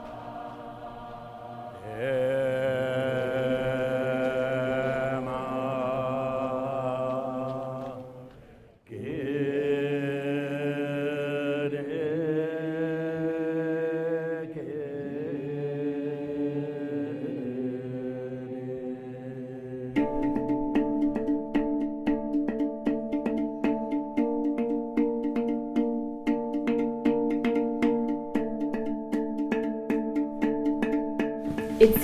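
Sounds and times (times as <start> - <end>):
slow sustained chanting: 0.0 - 20.0
music with struck notes: 20.0 - 32.0.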